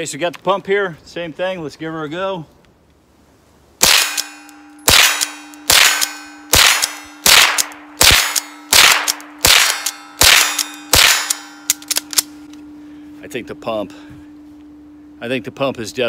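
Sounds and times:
rifle shots: 3.8 - 12.3
steel targets clanging: 3.9 - 7.3.

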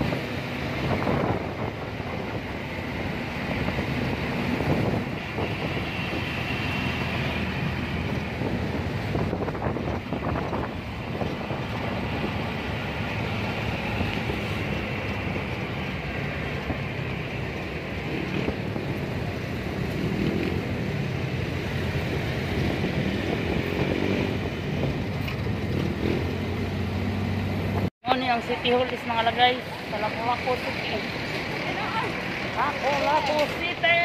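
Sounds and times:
city traffic: 0.0 - 34.0.

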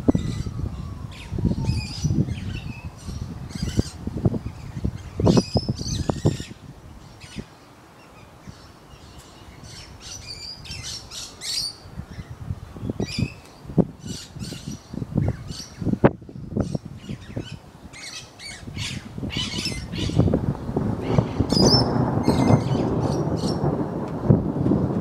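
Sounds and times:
birds squawking and chirping: 0.1 - 20.4, 21.0 - 23.7
deep rumbling noise: 18.9 - 25.0.

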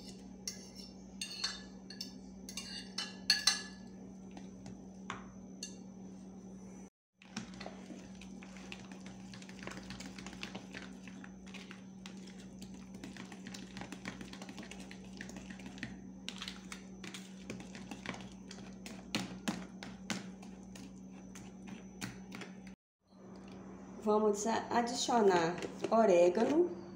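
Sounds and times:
spoon scraping plastic tub: 7.2 - 22.6
spoon stirring wet mash: 7.2 - 22.8.

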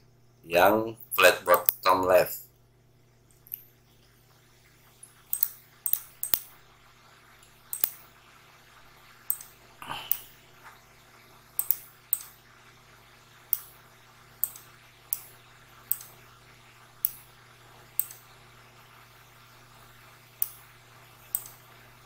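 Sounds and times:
faint low hum: 0.0 - 22.0
computer mouse clicking: 5.3 - 6.6, 7.4 - 8.1, 9.3 - 10.3, 11.6 - 12.4, 13.5 - 13.8, 14.4 - 16.2, 18.0 - 18.3, 20.4 - 20.7, 21.3 - 21.6.

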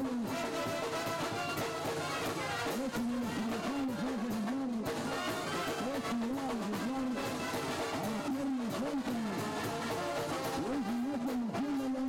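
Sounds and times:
brass band playing: 0.0 - 12.0.

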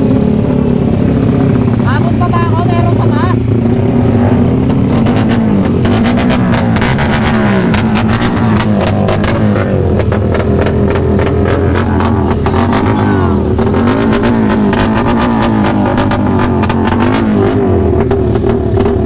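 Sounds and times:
motorcycle engine revving: 0.0 - 19.0
exhaust pops and cracks: 4.6 - 12.9.

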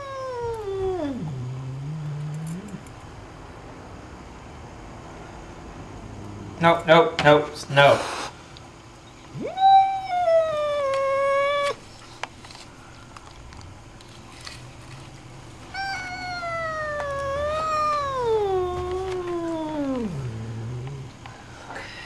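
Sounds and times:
cat yowling angrily: 0.0 - 2.8, 9.4 - 11.8, 15.8 - 21.2.

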